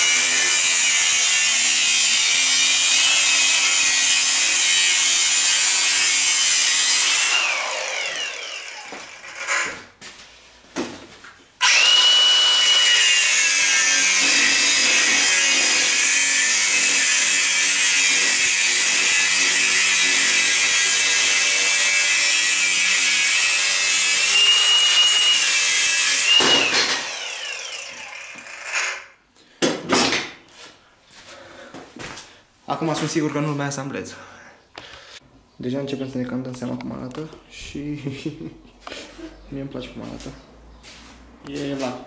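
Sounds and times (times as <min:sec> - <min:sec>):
angle grinder cutting steel: 0:00.0 - 0:09.8, 0:11.6 - 0:29.2.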